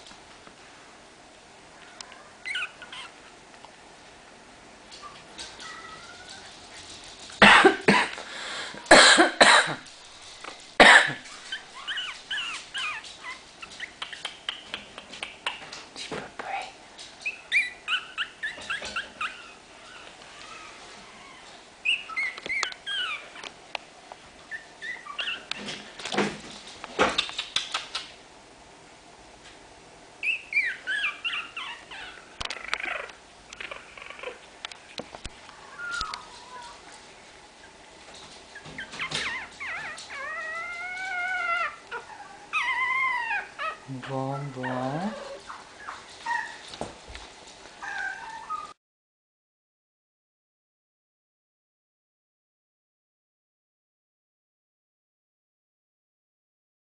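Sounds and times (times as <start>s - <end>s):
puppies yipping and whimpering: 1.8s - 3.3s, 5.0s - 7.3s, 11.2s - 15.7s, 17.2s - 23.5s, 24.4s - 26.0s, 30.2s - 34.5s, 35.4s - 37.0s, 37.6s - 46.9s, 47.8s - 48.8s
puppies barking: 5.0s - 8.1s, 9.0s - 15.6s, 38.5s - 46.7s.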